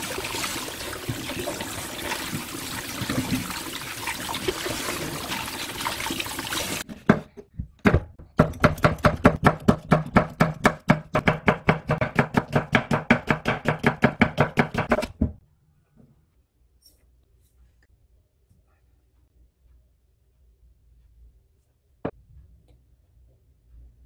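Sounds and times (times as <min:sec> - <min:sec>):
tap water running into steel bowl: 0:00.0 - 0:06.8
knife chopping on wooden board: 0:07.8 - 0:15.3.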